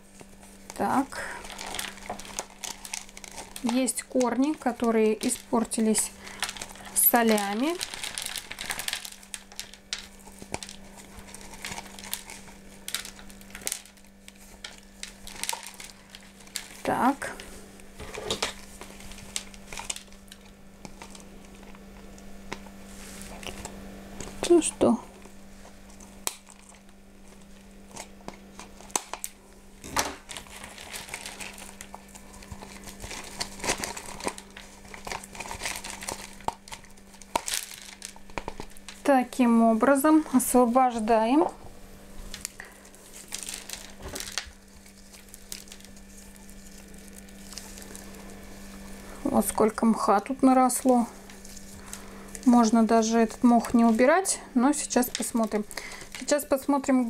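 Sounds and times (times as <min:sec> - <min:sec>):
hands rustling plant roots and moss: 0:00.0 - 0:17.5, 0:30.2 - 0:41.4, 0:42.3 - 0:57.0.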